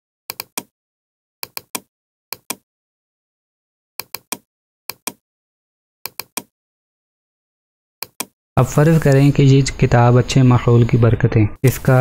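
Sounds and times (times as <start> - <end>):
computer mouse clicking: 0.3 - 0.7, 1.4 - 2.6, 4.0 - 5.2, 6.1 - 6.5, 8.0 - 8.4.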